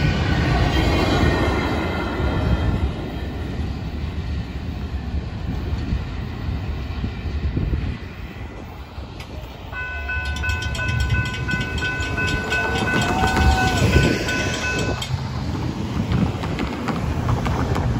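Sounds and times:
freight train rumble: 0.0 - 17.9
railroad crossing bell ringing: 9.7 - 15.2.

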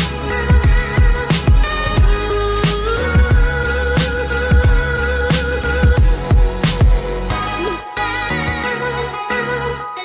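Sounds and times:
instrumental background music: 0.0 - 10.0.

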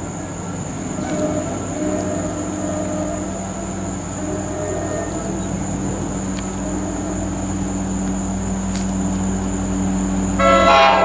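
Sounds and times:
diesel train droning: 0.0 - 11.0
train air horn: 0.8 - 8.7, 10.4 - 11.0.

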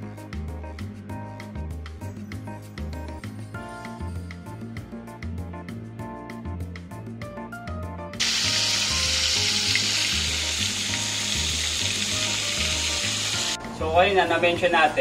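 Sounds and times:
food deep-frying in hot oil: 8.2 - 13.6.

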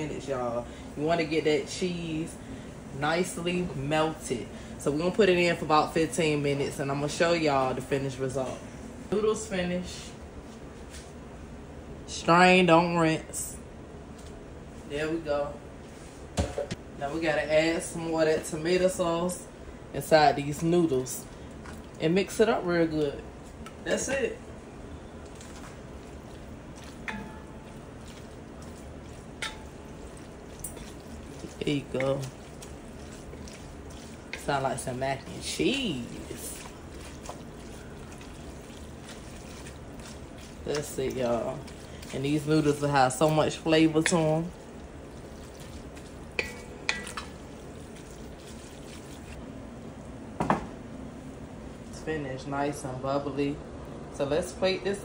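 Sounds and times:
wet squelching of stirred spaghetti: 20.0 - 50.2
utensil clinking on cookware: 26.8 - 27.8, 29.0 - 32.5, 46.3 - 47.6.

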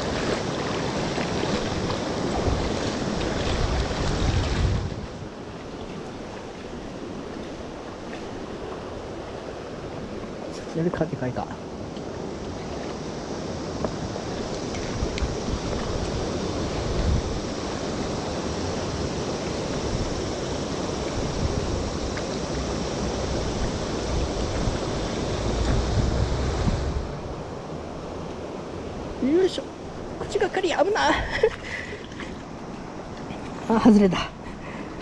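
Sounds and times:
wind buffeting microphone: 0.0 - 11.0, 11.7 - 35.0
river current rushing: 0.0 - 35.0.

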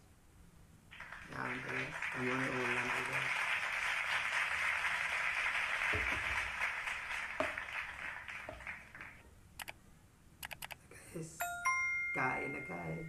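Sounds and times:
crowd clapping: 0.9 - 9.2
sharp clicks: 10.4 - 10.8.

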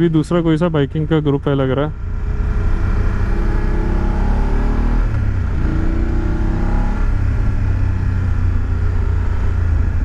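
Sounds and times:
motorcycle engine accelerating: 1.9 - 10.0.

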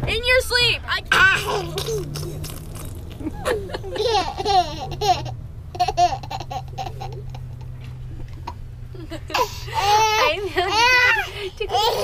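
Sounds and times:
steady low hum: 0.7 - 12.0
baby laughing and babbling: 1.1 - 2.7, 9.3 - 12.0.

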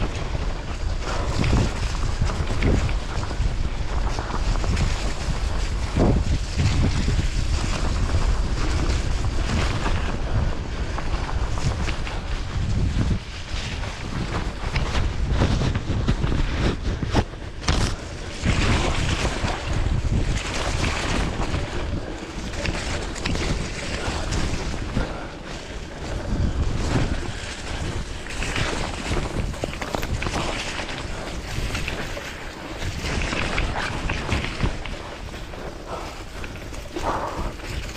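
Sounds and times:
bike tyres rolling through mud: 0.0 - 37.9
wind buffeting microphone: 0.0 - 37.9.

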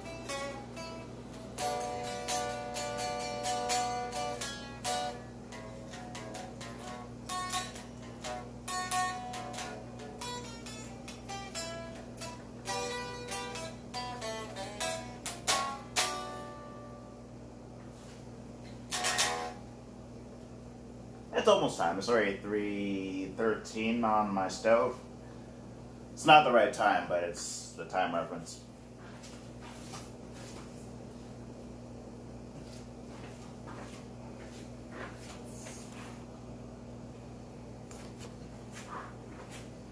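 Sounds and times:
electric guitar picked notes: 0.0 - 17.3, 18.9 - 19.7
electric guitar strummed chords: 0.0 - 17.3, 18.7 - 19.7
low electrical hum: 0.0 - 39.9.

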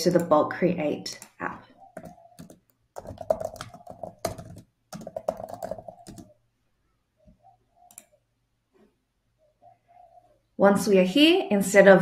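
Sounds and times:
computer keyboard typing: 1.2 - 6.4, 7.8 - 8.1.

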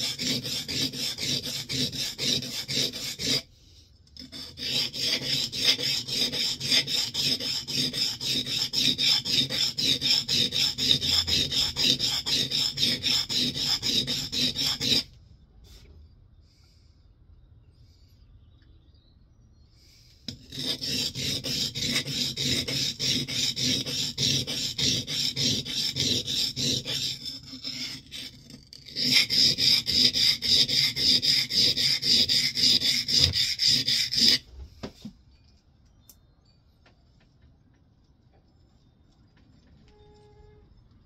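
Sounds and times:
plane iron rasping on sharpening stone: 0.0 - 3.5, 4.2 - 15.1, 20.3 - 34.4.

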